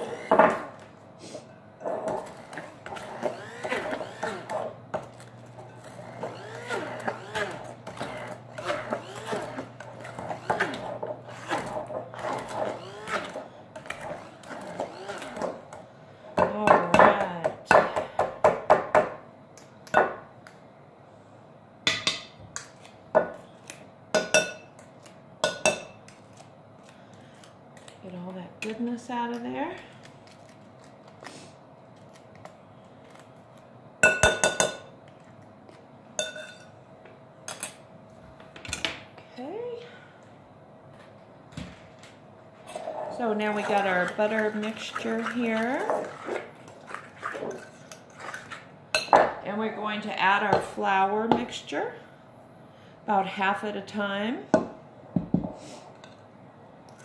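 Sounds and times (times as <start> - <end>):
electric stick blender running: 2.2 - 15.5.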